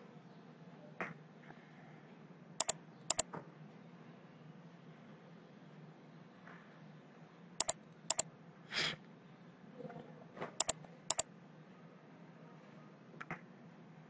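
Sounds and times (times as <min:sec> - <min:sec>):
computer mouse clicking: 0:02.6 - 0:03.2, 0:07.6 - 0:08.2, 0:10.6 - 0:11.2.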